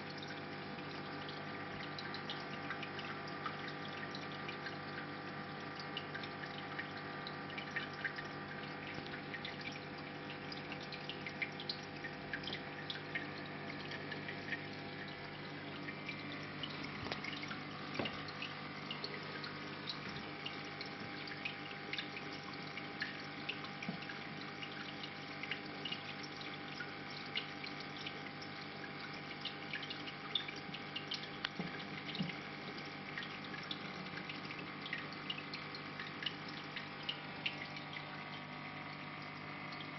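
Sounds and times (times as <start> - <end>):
aquarium pump hum: 0.0 - 39.9
small ticks and splashes: 0.0 - 39.9
water trickling and dripping: 0.0 - 39.9.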